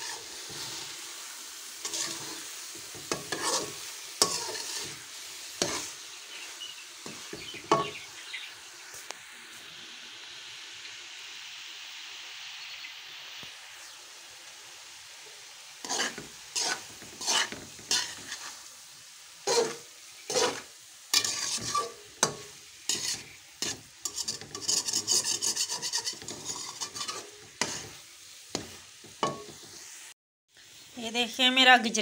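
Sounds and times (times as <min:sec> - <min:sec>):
metal spatula scraping pot: 0:00.0 - 0:00.9, 0:01.8 - 0:06.0, 0:07.0 - 0:08.0, 0:15.8 - 0:18.6, 0:19.5 - 0:29.7
faint sizzle: 0:00.0 - 0:32.0.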